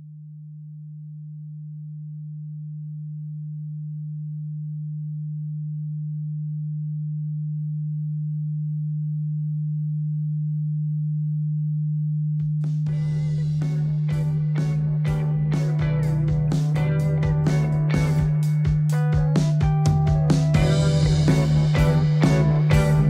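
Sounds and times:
low electronic tone: 20.0 - 23.0.

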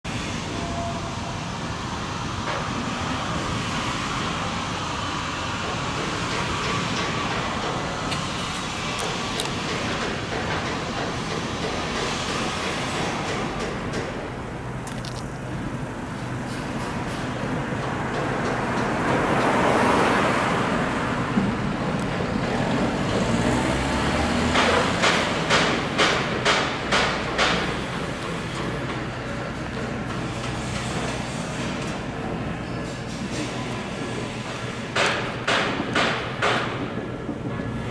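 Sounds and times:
road traffic noise: 0.0 - 37.9
vehicle passing: 18.0 - 26.8
sharp knocks: 24.5 - 27.8, 35.0 - 37.0.

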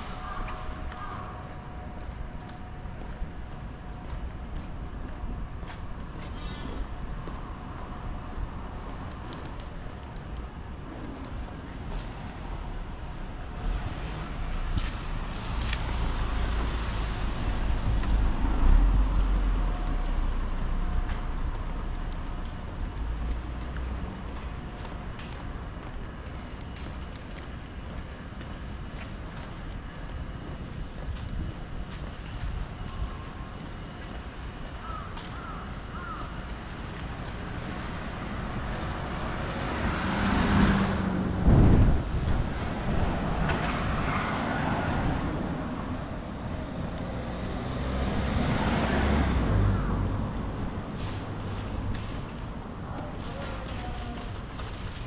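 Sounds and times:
vehicle engine and road noise: 0.0 - 55.0
vehicle passing by: 37.5 - 52.4.

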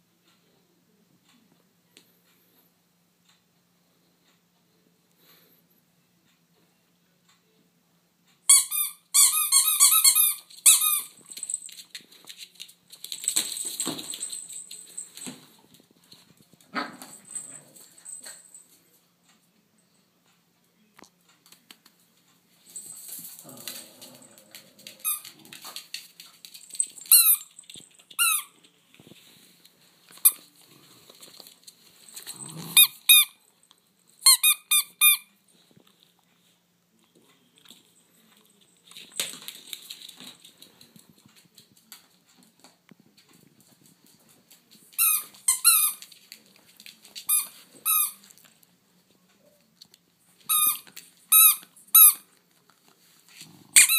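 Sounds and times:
rustling: 21.8 - 34.3.

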